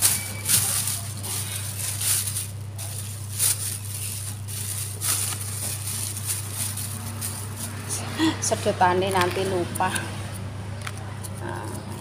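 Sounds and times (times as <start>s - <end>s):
plastic wrapping rustling: 0.0s - 8.1s
steady low hum: 0.0s - 12.0s.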